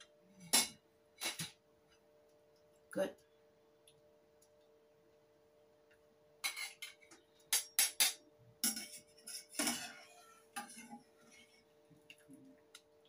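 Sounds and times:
metal utensils clinking on pot: 6.4s - 11.5s.

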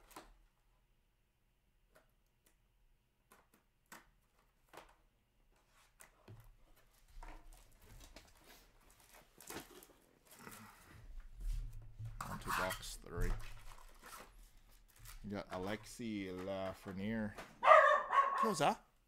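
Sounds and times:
foil pack crinkling: 7.3s - 10.9s.

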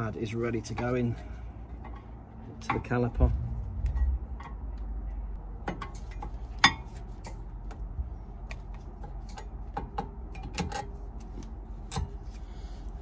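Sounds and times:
light sharp metal clicks and taps: 3.9s - 12.4s.

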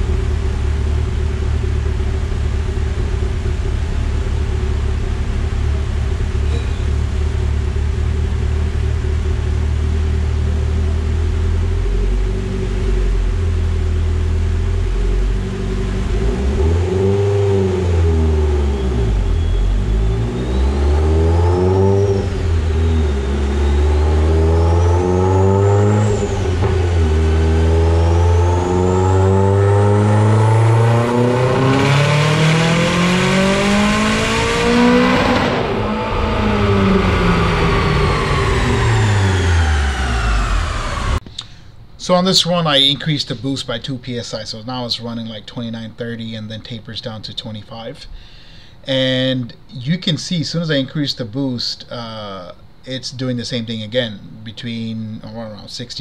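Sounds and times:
turbocharged car engine revving: 0.0s - 41.2s
high turbo whistle: 17.6s - 41.2s.

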